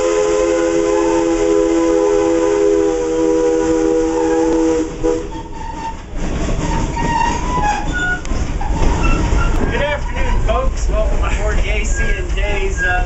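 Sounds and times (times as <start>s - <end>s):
steam locomotive whistle: 0.0s - 6.0s
train car rumble and clatter: 0.0s - 13.0s.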